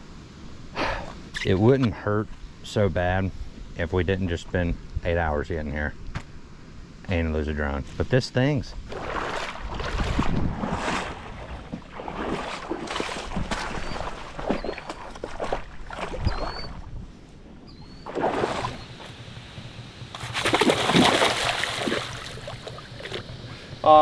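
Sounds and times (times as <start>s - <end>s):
footsteps splashing through water: 8.8s - 16.9s, 18.1s - 18.8s, 20.2s - 23.2s
small bird chirping: 13.7s - 15.2s, 16.1s - 16.9s, 17.6s - 18.1s.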